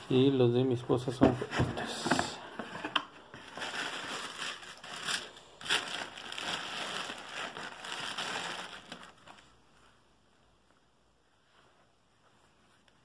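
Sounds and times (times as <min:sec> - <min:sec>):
paper and plastic rustling: 0:01.3 - 0:10.0
sharp plastic crackles: 0:03.4 - 0:09.5.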